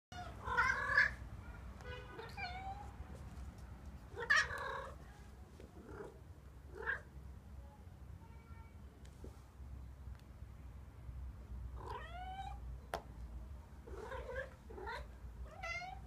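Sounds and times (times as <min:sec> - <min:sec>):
cat meowing: 0:00.1 - 0:01.2, 0:02.1 - 0:02.9, 0:04.2 - 0:05.0, 0:11.8 - 0:12.6, 0:13.9 - 0:16.0.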